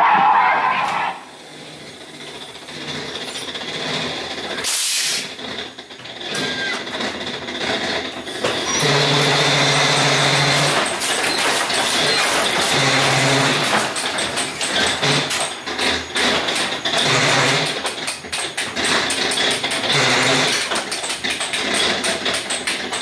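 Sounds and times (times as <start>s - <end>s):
ride car running along track: 0.0s - 23.0s
loud hiss: 4.6s - 5.3s.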